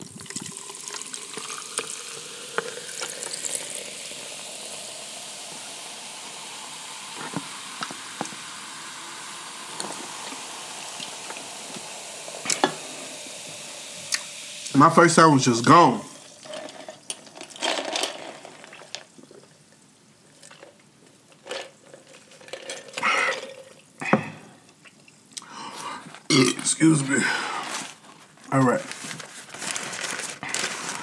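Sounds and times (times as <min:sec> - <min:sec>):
soda pouring over ice: 0:00.0 - 0:24.8, 0:26.2 - 0:31.0
soda fizzing: 0:00.0 - 0:28.9, 0:29.5 - 0:31.0
ice clicking: 0:00.2 - 0:08.5.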